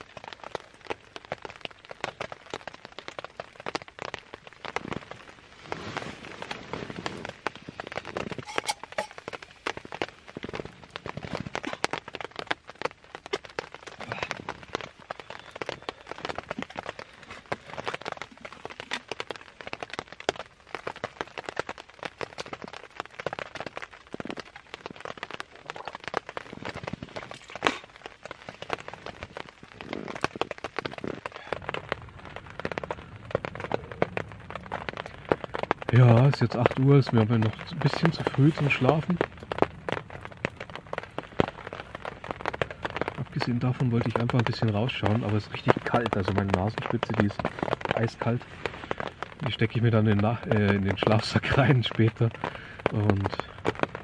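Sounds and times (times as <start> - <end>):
rain falling on a tarp: 0.0 - 54.0.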